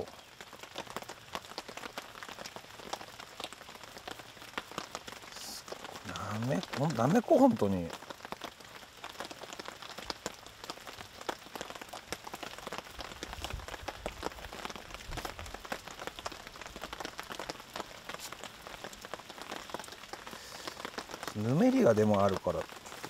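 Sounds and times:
rain falling: 0.0s - 23.0s.

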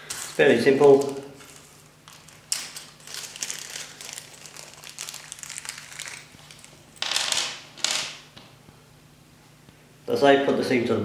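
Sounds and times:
packaging crinkling and rustling: 0.0s - 8.2s.

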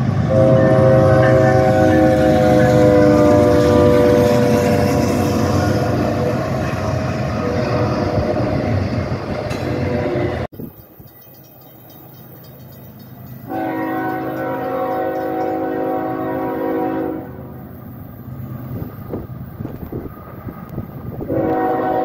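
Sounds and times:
freight cars rumbling past: 0.0s - 22.0s
locomotive air horn chord: 0.2s - 6.6s, 13.5s - 17.4s, 21.3s - 22.0s.

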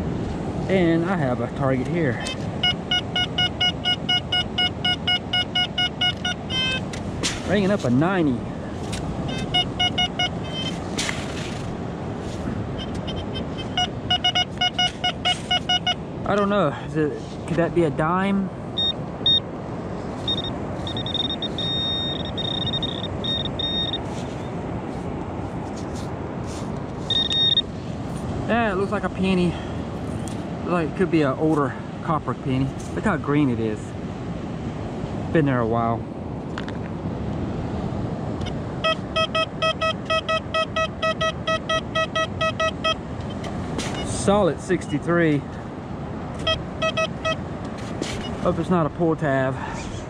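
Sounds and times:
wind: 0.0s - 50.0s
metal detector high-pitched beeping: 2.2s - 6.9s, 9.3s - 10.8s, 12.8s - 16.5s, 18.8s - 19.4s, 20.3s - 24.1s, 27.1s - 27.7s, 38.4s - 43.4s, 44.0s - 44.2s, 46.4s - 47.4s.

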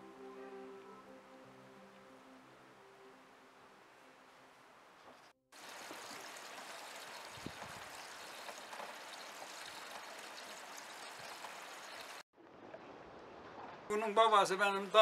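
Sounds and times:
water pouring from hose into sink: 5.6s - 12.2s.

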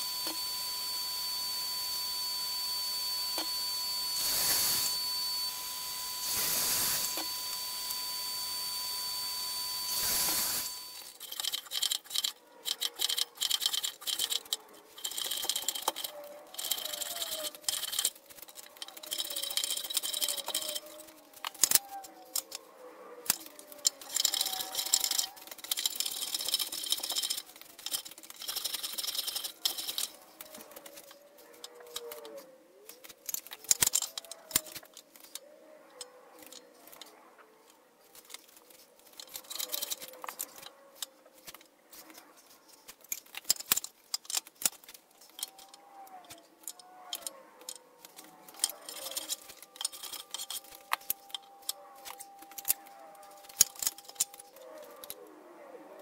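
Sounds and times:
knocks and clicks of handled tools: 10.0s - 22.6s, 23.2s - 55.2s.

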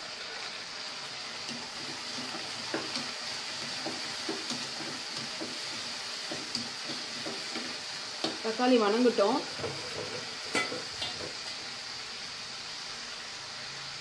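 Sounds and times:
onions and tomato sizzling in oil: 0.0s - 14.0s
spatula scraping pan: 1.4s - 8.6s, 9.4s - 11.7s.

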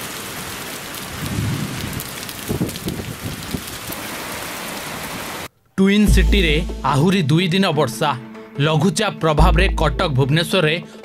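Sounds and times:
heavy rain pouring: 0.0s - 5.5s.

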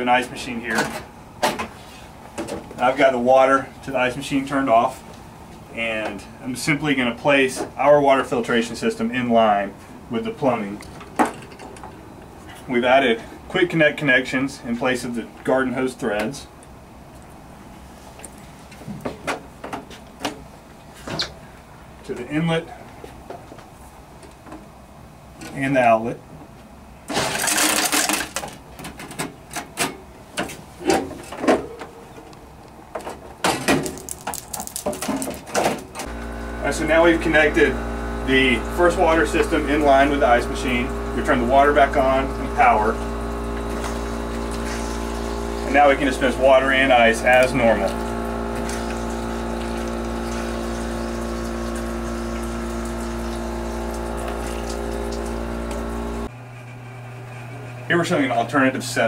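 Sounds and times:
electric hum: 33.8s - 59.0s
water pouring into cup: 48.0s - 56.2s.

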